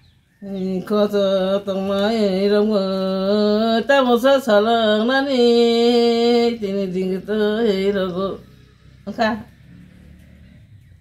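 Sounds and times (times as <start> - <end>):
elderly woman chanting: 0.4 - 9.6.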